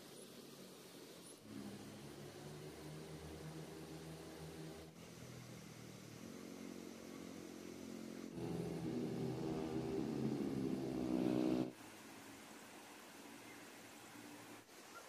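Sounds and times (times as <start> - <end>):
engine humming: 1.4 - 11.8.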